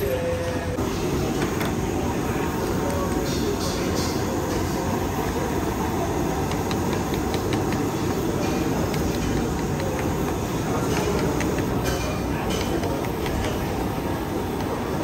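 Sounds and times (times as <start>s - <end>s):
gas stove burner roaring: 0.7s - 15.0s
chopsticks clicking against a pot: 6.4s - 13.7s.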